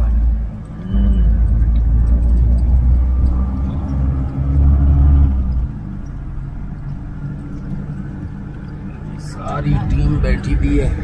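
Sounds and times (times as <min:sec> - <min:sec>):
car engine rumbling: 0:00.0 - 0:11.0.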